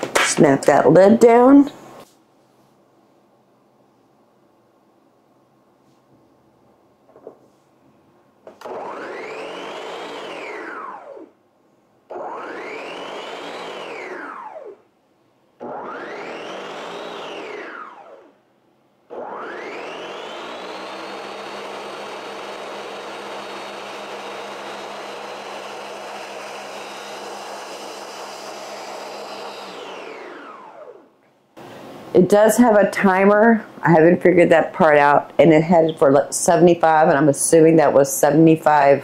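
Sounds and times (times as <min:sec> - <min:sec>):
blender motor blending: 0:08.5 - 0:11.3, 0:12.1 - 0:14.8, 0:15.6 - 0:18.4, 0:19.1 - 0:31.1.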